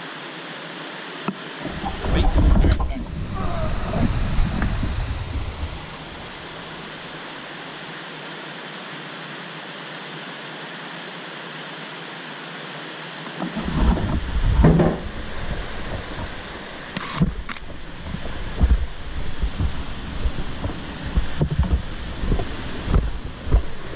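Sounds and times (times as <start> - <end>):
steady outdoor hiss: 0.0 - 23.9
low rumbling handling knocks: 1.6 - 7.0, 13.4 - 23.9.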